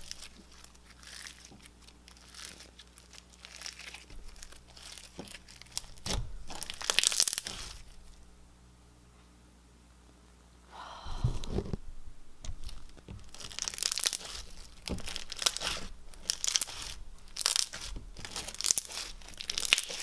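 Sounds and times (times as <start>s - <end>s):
beaded slime crackling: 0.0s - 8.2s, 12.4s - 20.0s.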